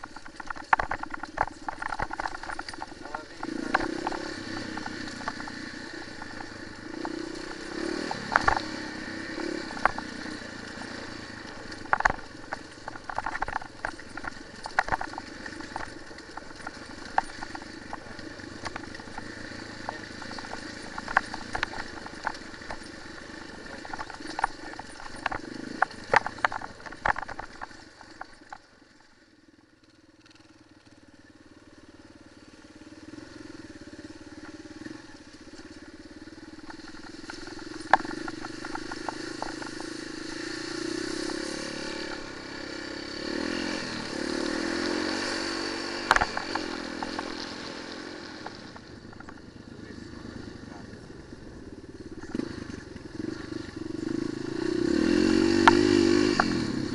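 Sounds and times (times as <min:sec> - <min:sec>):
stones knocking on chassis: 0:00.0 - 0:07.2, 0:08.2 - 0:08.7, 0:11.7 - 0:28.6, 0:46.0 - 0:47.6
motorcycle engine revving: 0:00.0 - 0:56.9.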